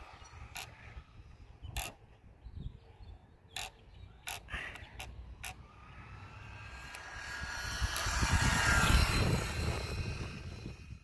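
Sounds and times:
sharp clicks: 3.6s - 5.6s
radio-controlled car motor whine: 5.4s - 10.8s.

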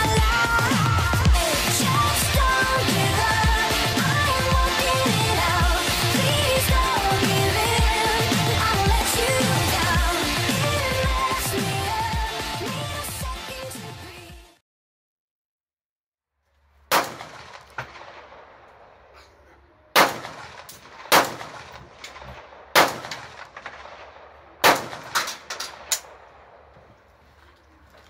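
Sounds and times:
rifle shots with echo: 16.9s - 19.2s, 19.9s - 26.8s.

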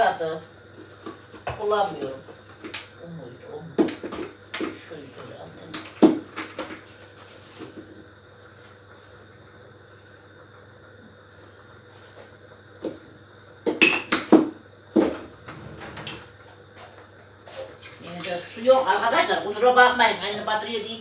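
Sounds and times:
dishes and glassware clinking: 15.4s - 16.3s.

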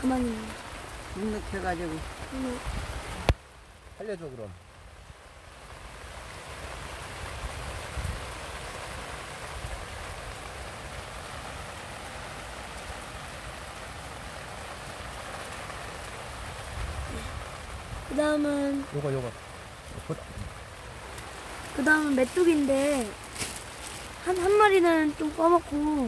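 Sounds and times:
steady rain falling: 0.0s - 26.0s.

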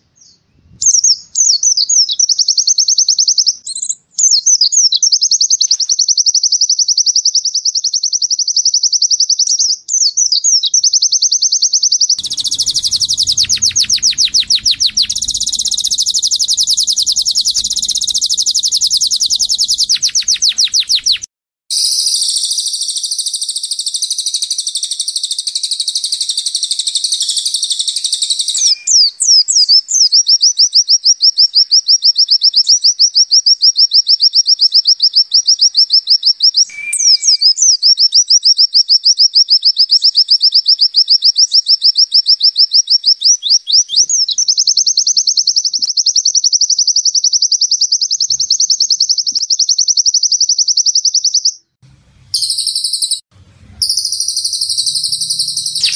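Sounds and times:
complex high birdsong: 10.7s - 21.3s, 51.9s - 55.9s
bird buzzing trill: 12.2s - 21.3s, 53.9s - 55.9s.

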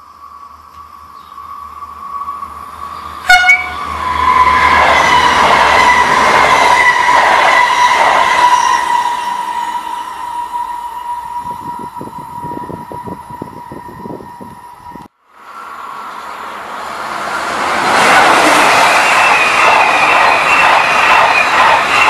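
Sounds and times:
train rushing past: 0.0s - 22.0s
train horn blast: 3.2s - 6.2s.

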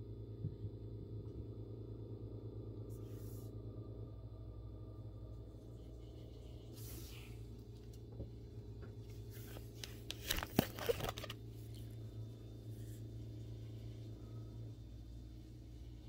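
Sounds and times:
low steady hum: 0.0s - 16.0s
plastic pages rustling: 9.2s - 11.5s.

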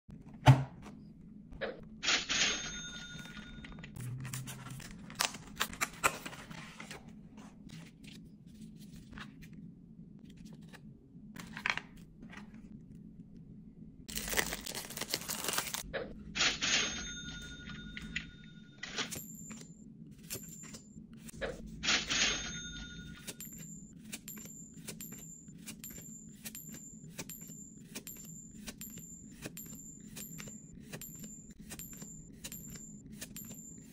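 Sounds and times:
plastic wrap crinkling and tearing: 14.1s - 15.8s
ringing hits with high tone: 16.9s - 19.6s, 21.8s - 33.9s.

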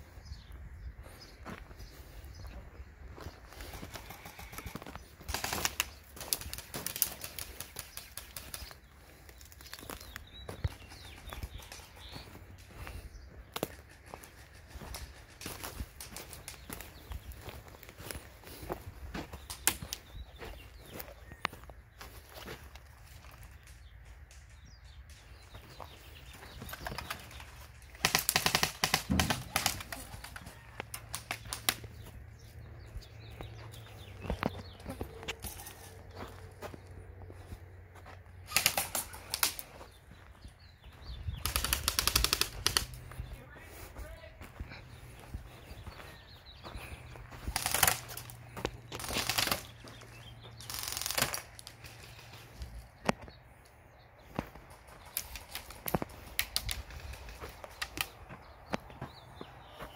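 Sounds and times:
airsoft gun full-auto bursts: 28.0s - 29.9s, 50.6s - 51.4s.

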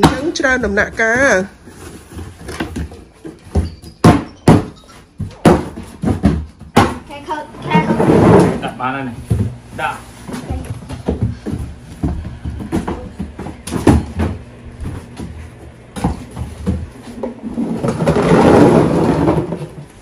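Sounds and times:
cardboard boxes knocking: 0.0s - 7.1s, 10.3s - 15.4s.

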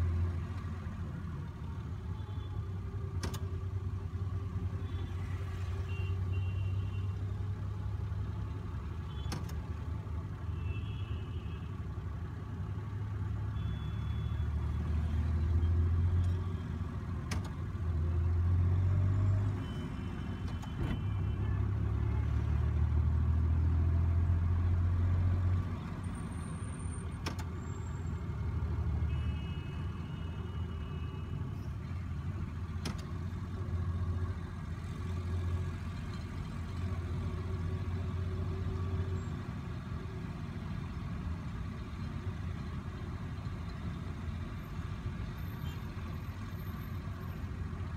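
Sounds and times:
car engine and road rumble: 0.0s - 47.9s
car horn beeps: 5.8s - 7.2s, 10.5s - 11.7s, 13.6s - 14.6s, 19.6s - 21.7s, 29.0s - 31.4s.

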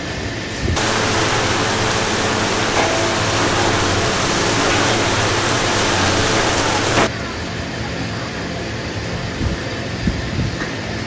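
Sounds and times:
low machine hum: 0.8s - 7.1s
machine hissing: 0.8s - 7.1s.

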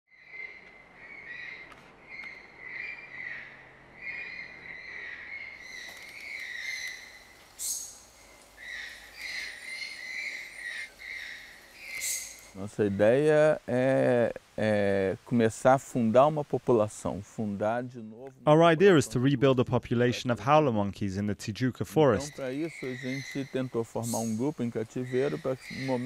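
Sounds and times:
birds calling: 0.1s - 13.4s, 22.0s - 26.0s
insects calling: 0.2s - 16.4s, 22.1s - 26.0s.

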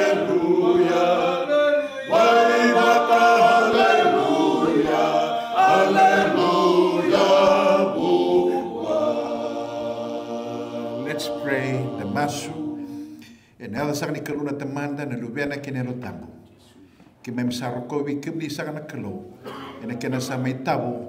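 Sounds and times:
men singing a hymn a cappella: 0.0s - 13.2s.

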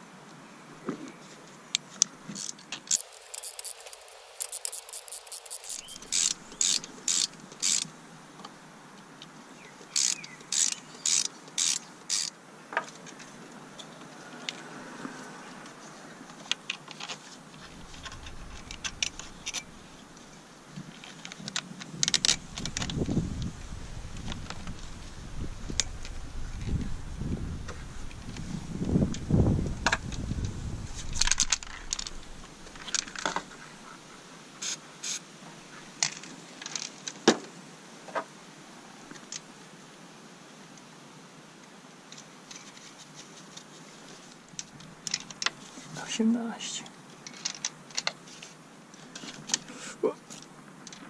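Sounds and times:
socket ratchet clicking: 2.4s - 7.9s, 10.0s - 12.3s.

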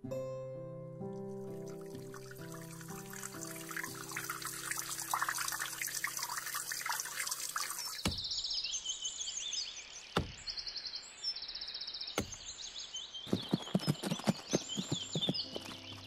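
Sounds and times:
birds chirping in trills: 1.9s - 16.0s
sharp knocks: 8.0s - 8.3s, 10.2s - 10.5s, 12.2s - 12.5s.

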